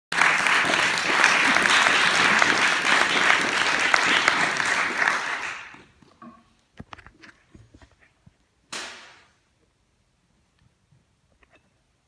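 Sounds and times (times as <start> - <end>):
audience applauding: 0.1 - 6.0.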